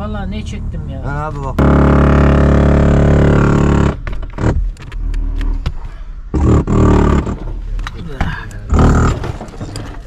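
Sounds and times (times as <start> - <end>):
motor running: 1.6 - 4.5
rubble scraping and clattering: 6.6 - 10.0.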